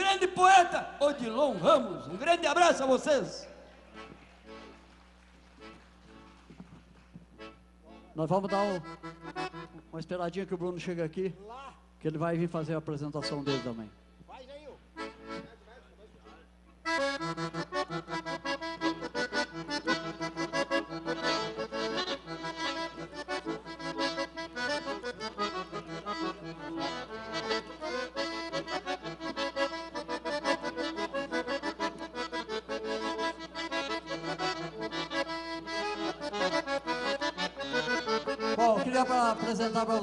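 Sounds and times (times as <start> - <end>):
piano accordion tune: 0.0 - 6.6, 7.3 - 11.2, 12.1 - 14.1, 14.9 - 40.0
bass and chords: 7.3 - 9.9, 16.8 - 39.6.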